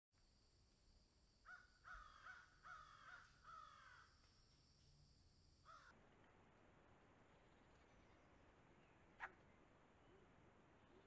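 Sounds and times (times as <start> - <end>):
crows cawing: 1.5 - 4.1, 5.6 - 5.9.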